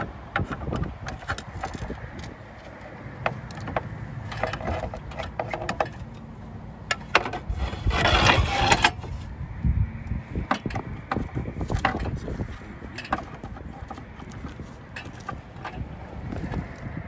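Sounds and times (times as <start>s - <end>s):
slate grating scrape: 7.3s - 9.3s.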